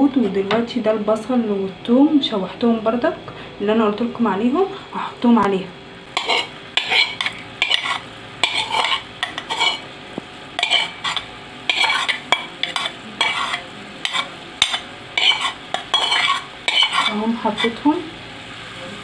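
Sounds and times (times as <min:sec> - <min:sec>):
light steady sizzle: 0:00.0 - 0:19.0
metal spoon scraping metal pot: 0:06.2 - 0:09.8, 0:10.6 - 0:17.8.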